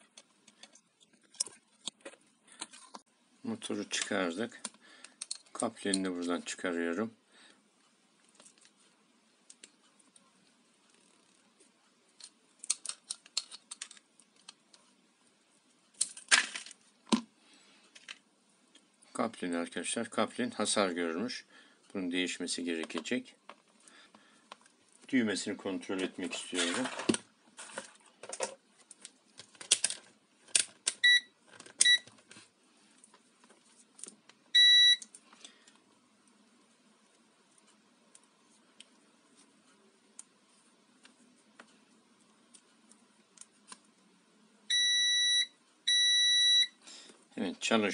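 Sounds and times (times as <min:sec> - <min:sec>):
plastic scraping crunch: 0:26.0 - 0:28.6
multimeter beeps: 0:31.0 - 0:32.1, 0:34.6 - 0:35.0, 0:44.7 - 0:46.8.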